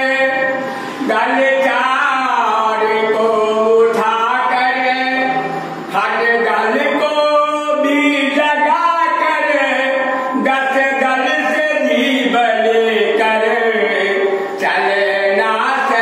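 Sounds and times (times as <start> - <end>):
man singing unaccompanied: 0.0 - 16.0.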